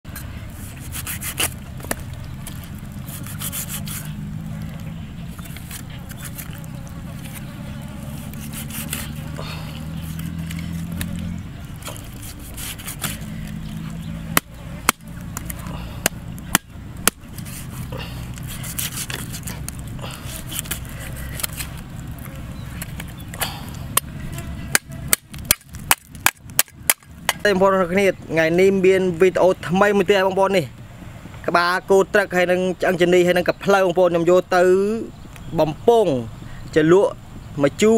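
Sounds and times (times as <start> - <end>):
steady low hum: 0.0 - 29.3
knife blade scraping skin: 0.6 - 1.6, 3.0 - 4.2, 5.4 - 6.6, 7.2 - 11.2, 11.8 - 21.8
cleaver chopping bone on wood: 13.9 - 17.3, 24.7 - 27.4.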